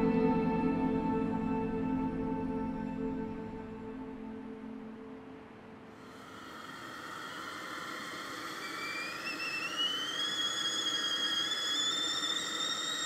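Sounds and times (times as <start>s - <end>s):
kettle whistling: 6.4s - 13.0s.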